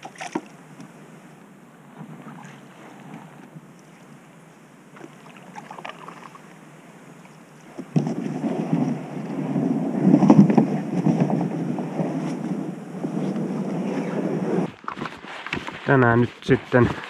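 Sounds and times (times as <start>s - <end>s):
paddle splashing in water: 0.0s - 1.0s, 1.8s - 12.6s
wind noise on microphone: 7.6s - 17.0s.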